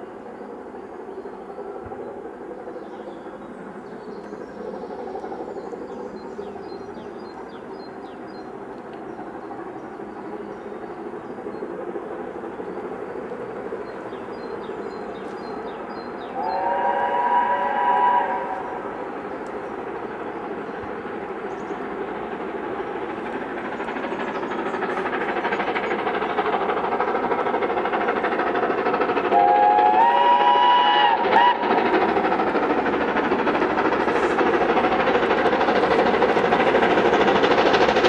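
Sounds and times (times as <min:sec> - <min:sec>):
train rumbling: 0:00.0 - 0:38.0
train horn chord: 0:16.4 - 0:18.7, 0:29.3 - 0:31.6.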